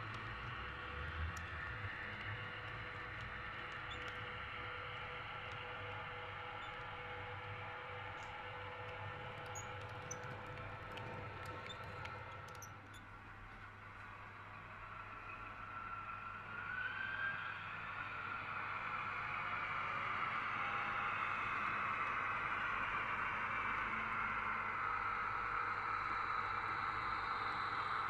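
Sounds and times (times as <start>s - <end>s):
wheels clicking on rails: 0.0s - 13.0s.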